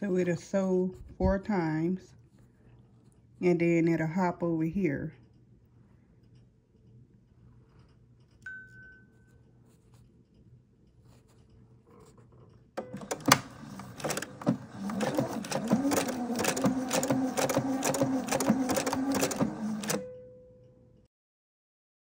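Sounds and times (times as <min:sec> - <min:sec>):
sewing machine running: 0:12.8 - 0:20.0
sewing machine click: 0:12.8 - 0:20.1.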